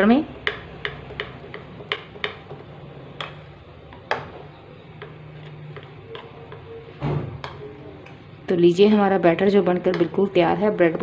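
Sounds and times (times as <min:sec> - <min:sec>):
spoon stirring thick batter: 0:00.0 - 0:11.0.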